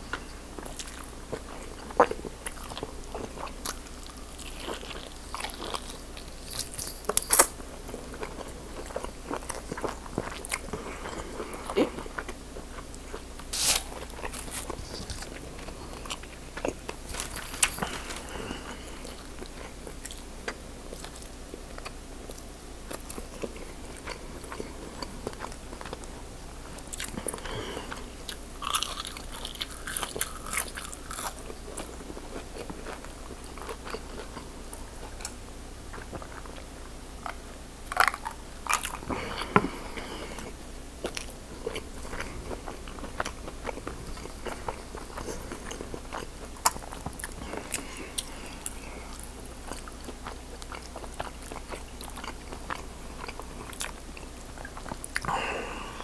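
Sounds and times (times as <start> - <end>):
crisp crunches of fried food: 28.3 - 34.3, 37.9 - 39.1
chewing with wet mouth clicks: 41.0 - 55.3.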